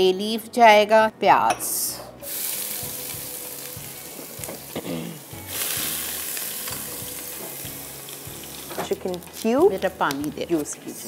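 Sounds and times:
onion sizzling in hot oil: 0:02.2 - 0:11.0.

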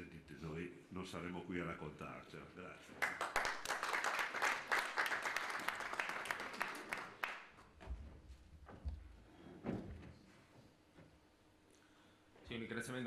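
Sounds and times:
audience applauding: 0:03.0 - 0:07.6.

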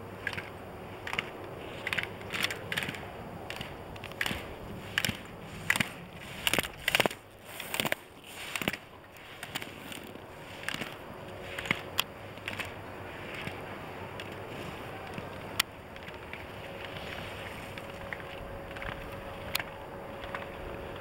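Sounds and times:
skis scraping on snow: 0:00.0 - 0:21.0.

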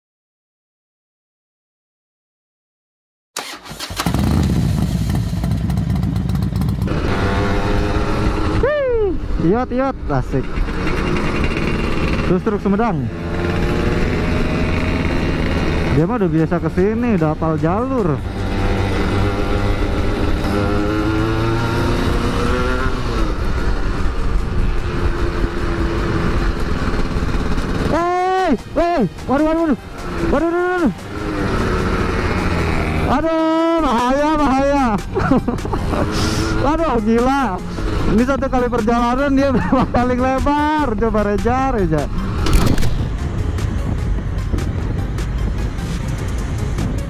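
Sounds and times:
motorcycle engine running: 0:03.4 - 0:47.0
wind rumble on microphone: 0:42.3 - 0:47.0.

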